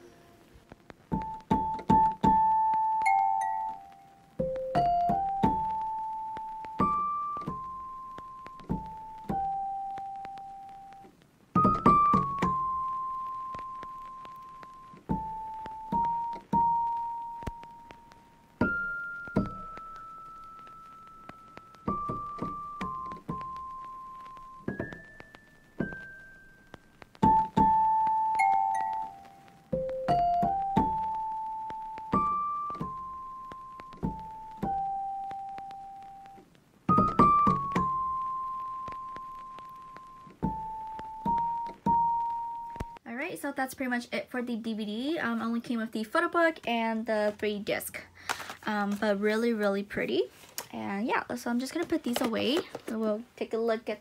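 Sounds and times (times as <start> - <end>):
slow piano melody: 1.1 - 43.0
slow solo piano melody: 29.7 - 35.5.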